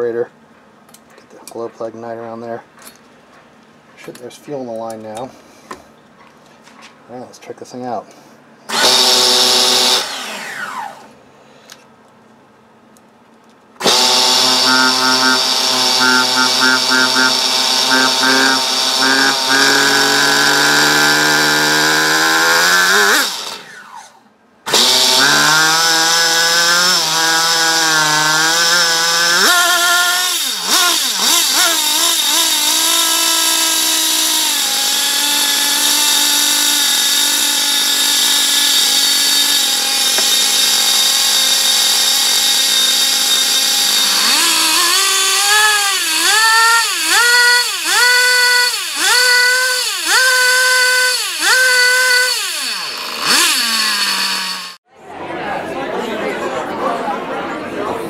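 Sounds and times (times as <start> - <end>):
rc car nitro engine revving: 8.7 - 11.1, 13.8 - 54.8.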